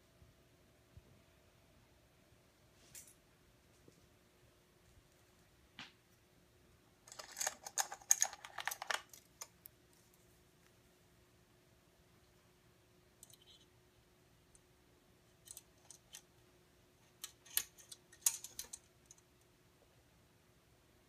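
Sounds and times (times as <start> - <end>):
metallic clicks and clinks: 7.1 - 9.6, 13.2 - 13.6, 15.4 - 16.3, 17.0 - 19.3.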